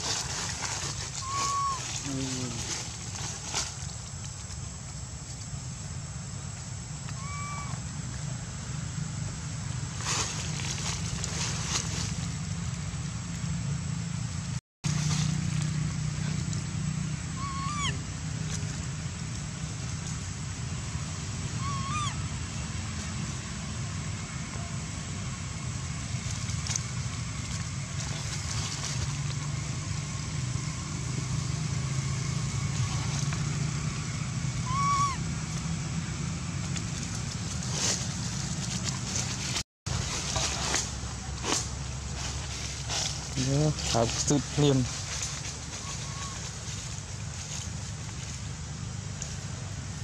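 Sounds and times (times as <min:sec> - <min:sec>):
rustling: 0:00.0 - 0:04.6, 0:09.9 - 0:12.5, 0:36.6 - 0:48.6
short high calls: 0:01.0 - 0:02.8, 0:07.0 - 0:07.9, 0:17.3 - 0:18.0, 0:21.5 - 0:22.3, 0:34.5 - 0:35.3.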